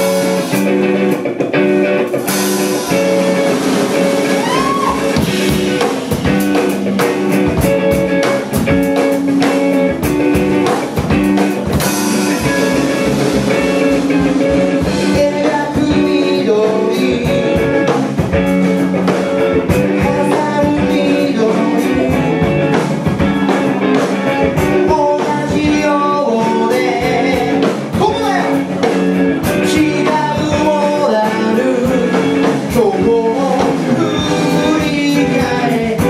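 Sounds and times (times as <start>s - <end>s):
drum kit beating: 0.0s - 36.0s
live rock band: 0.0s - 36.0s
person singing: 4.3s - 5.5s, 14.8s - 18.0s, 19.7s - 23.2s, 24.6s - 28.8s, 29.5s - 36.0s.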